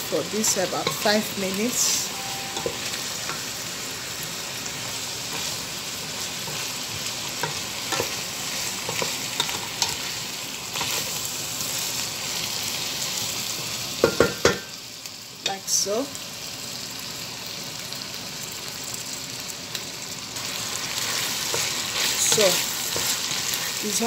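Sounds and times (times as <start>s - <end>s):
vegetables sizzling in a pot: 0.0s - 24.0s
spoon knocking on a pot: 14.0s - 14.7s.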